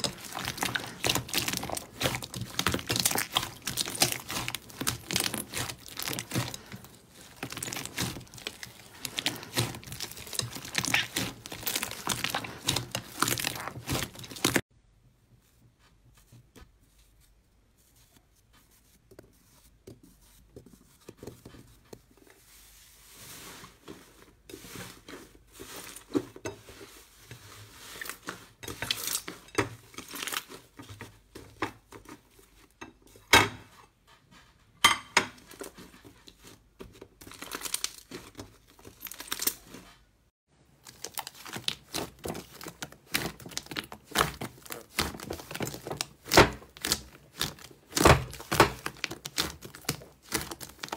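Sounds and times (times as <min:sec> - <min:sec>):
hands squeezing and tearing slime: 0:00.0 - 0:14.6, 0:27.0 - 0:30.8, 0:37.2 - 0:39.8, 0:40.8 - 0:50.9.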